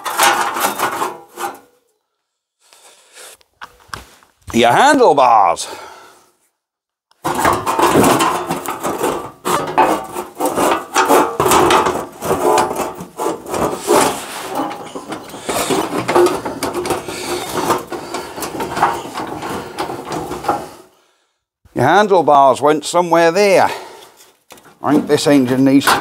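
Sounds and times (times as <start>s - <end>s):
metal parts scraping and clunking: 0.0s - 1.8s, 7.2s - 21.0s, 24.0s - 26.0s.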